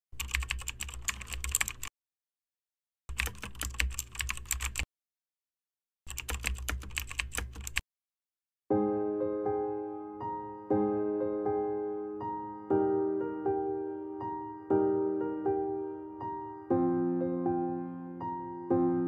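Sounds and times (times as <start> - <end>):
keyboard typing: 0.2 - 1.9, 3.1 - 4.9, 6.1 - 7.8
piano music: 8.7 - 19.0.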